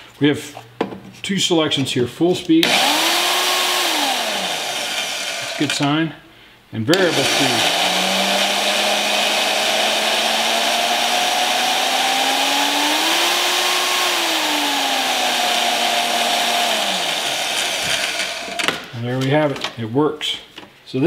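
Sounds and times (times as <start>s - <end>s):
electric motor whine: 2.6s - 5.7s, 7.0s - 18.7s.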